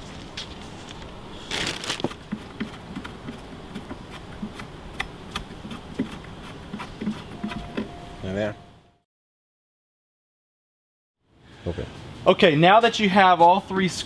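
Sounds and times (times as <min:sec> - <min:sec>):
fabric rustling: 0:00.0 - 0:02.1.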